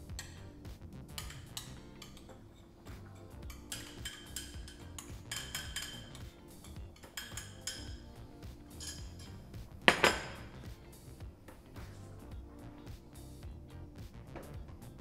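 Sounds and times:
metal spoon scraping a bowl: 0.0s - 9.5s
background music: 0.0s - 15.0s
cutlery clinks: 1.2s - 8.1s, 8.7s - 10.6s.

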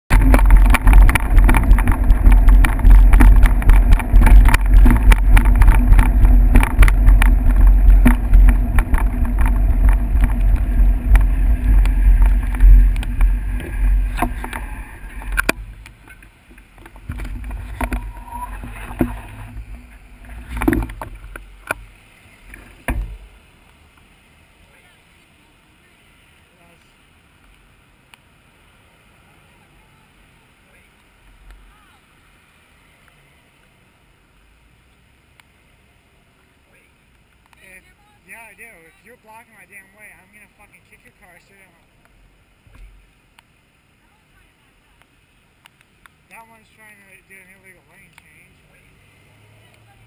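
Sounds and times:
wind and road rumble: 0.0s - 50.0s
knocks and rattles: 0.1s - 16.2s, 16.8s - 21.8s
cars passing close by: 47.1s - 50.0s.

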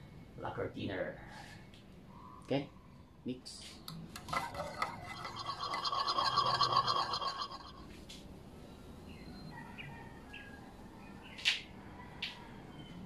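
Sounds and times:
metal rod scraping tin: 4.2s - 7.9s.

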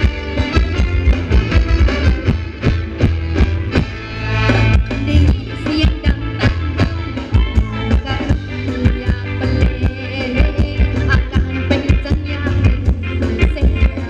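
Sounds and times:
bass line: 0.0s - 14.0s
guitar melody: 0.0s - 14.0s
live band music: 0.0s - 14.0s
steady drum beat: 0.0s - 14.0s.

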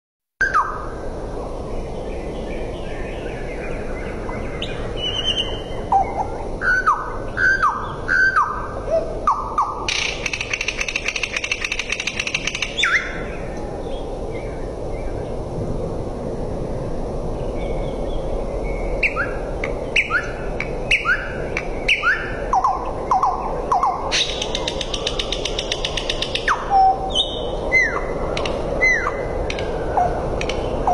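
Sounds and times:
nightingale singing: 0.4s - 0.9s, 1.7s - 15.3s, 17.4s - 30.9s
dry rapid bird rattle: 9.8s - 13.1s, 24.1s - 26.6s.

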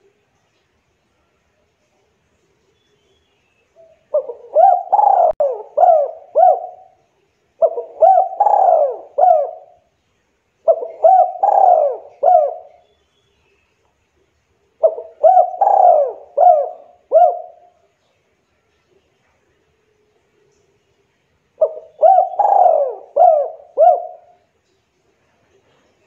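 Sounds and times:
dove cooing: 3.8s - 7.0s, 7.6s - 9.9s, 10.6s - 12.8s, 14.8s - 17.8s, 21.6s - 24.5s.

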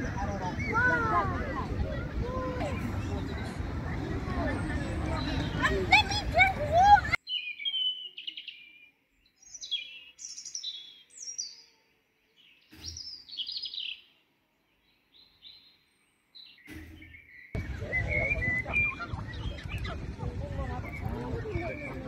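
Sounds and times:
busy background noise: 0.0s - 7.2s, 17.6s - 22.0s
songbird chirping: 2.6s - 22.0s.

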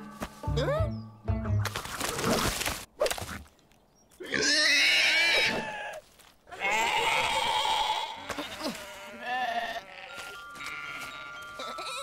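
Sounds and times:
cartoon sheep bleating: 4.3s - 12.0s.

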